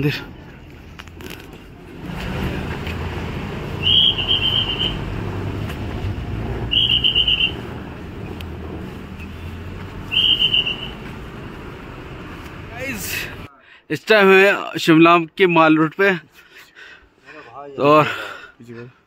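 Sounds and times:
road traffic rumble: 0:00.0 - 0:13.7
trilling whistle blasts: 0:03.7 - 0:05.2, 0:06.6 - 0:07.8, 0:10.0 - 0:11.1.

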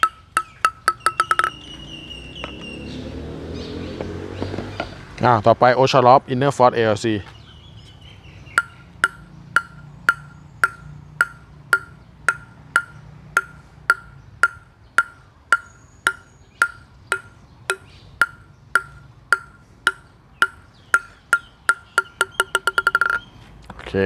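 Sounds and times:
table tennis ball bouncing on paddle: 0:00.0 - 0:01.6, 0:08.6 - 0:23.2.

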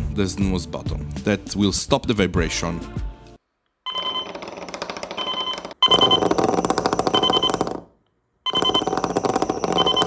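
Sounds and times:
vibration motor rattling on concrete: 0:08.5 - 0:10.0.

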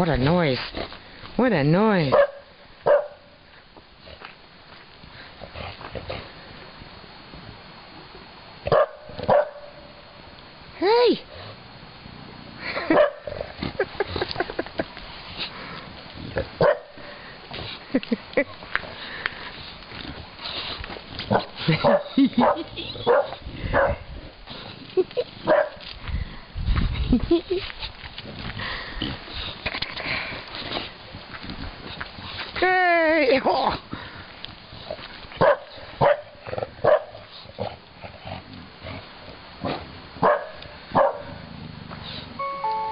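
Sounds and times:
dogs barking and yapping: 0:02.1 - 0:03.4, 0:08.6 - 0:09.9, 0:12.7 - 0:14.8, 0:16.4 - 0:17.1, 0:20.4 - 0:26.0, 0:35.0 - 0:37.9, 0:39.6 - 0:42.3.

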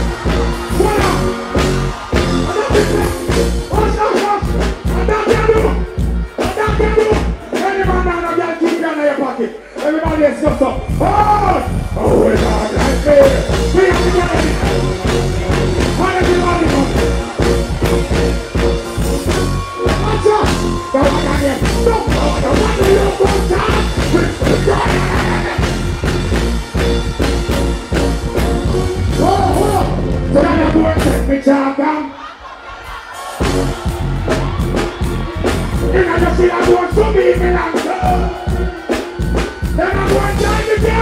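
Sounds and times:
live reggae band music: 0:00.0 - 0:41.0
vocalist singing: 0:19.7 - 0:25.8.

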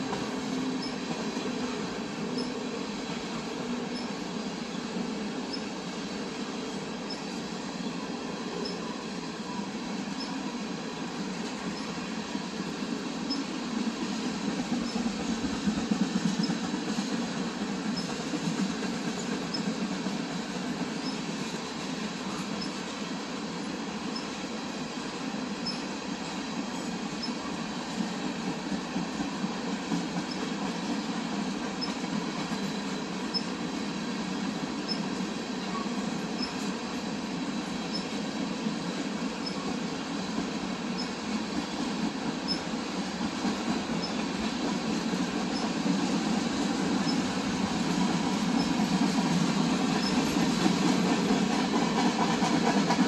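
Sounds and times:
freight train rumbling past: 0:00.0 - 0:53.0.

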